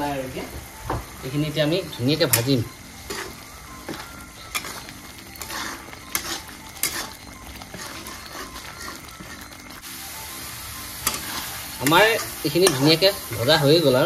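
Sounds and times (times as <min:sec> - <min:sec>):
hot oil sizzling: 0:00.0 - 0:14.0
metal spatula scraping pan: 0:02.2 - 0:09.9, 0:11.0 - 0:14.0.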